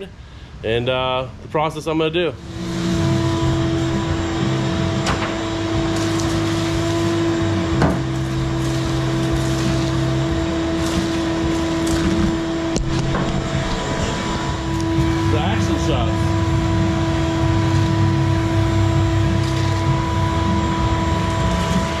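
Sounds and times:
shop vacuum motor hum: 2.4 - 22.0.

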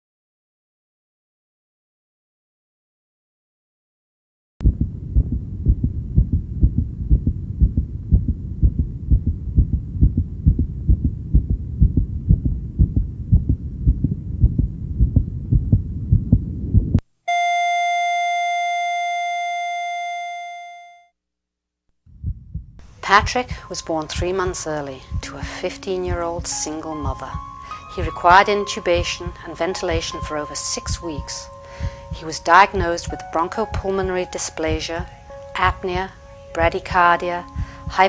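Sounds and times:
fetal heartbeat on doppler: 4.6 - 17.0, 22.2 - 27.5, 30.8 - 33.1, 37.5 - 38.0
electronic tone: 17.3 - 21.1.

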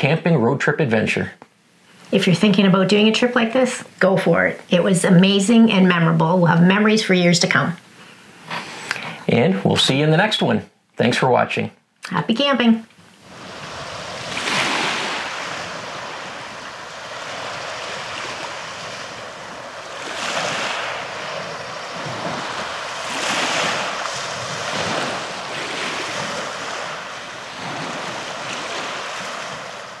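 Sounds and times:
waves washing on pebble beach: 13.2 - 30.0.

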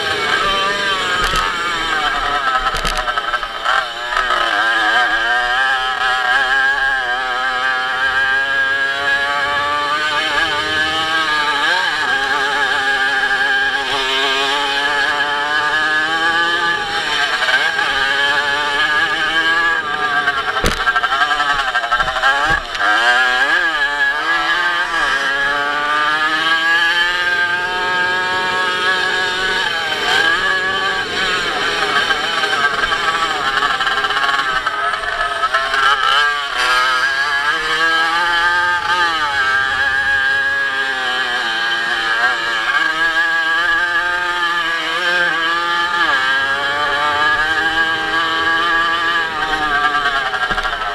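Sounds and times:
motorcycle engine revving: 0.0 - 50.9
low thuds of bike hitting bumps: 17.8 - 24.2.

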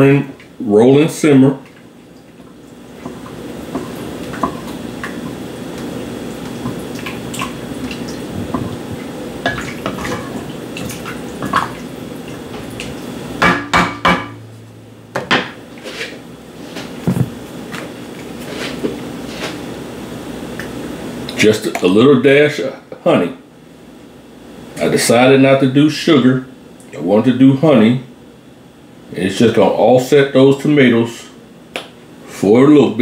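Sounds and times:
sharp knocks: 13.4 - 14.4.

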